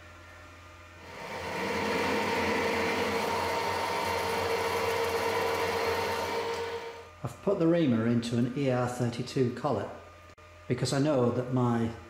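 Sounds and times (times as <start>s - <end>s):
metal lathe whining: 1.0s - 7.1s
drill boring into metal bar: 1.1s - 6.9s.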